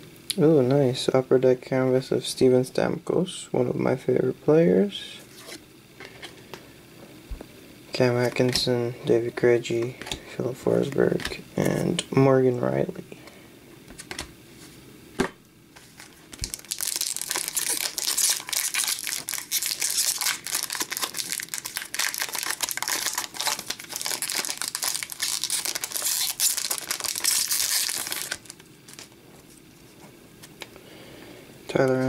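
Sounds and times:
foil wrapper crinkling: 15.8 - 30.6.

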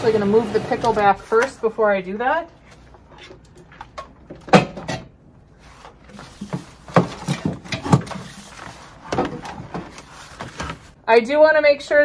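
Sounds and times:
slow cooker scraping on plastic tray: 0.0 - 1.5.

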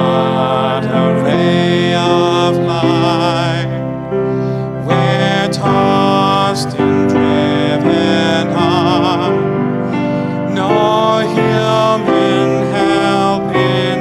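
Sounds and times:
instrumental accompaniment chords: 0.0 - 14.0
person singing a hymn: 0.0 - 14.0.

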